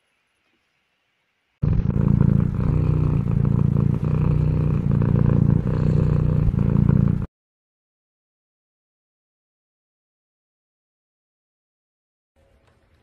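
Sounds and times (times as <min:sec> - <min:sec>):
cat purring: 0:01.6 - 0:07.3.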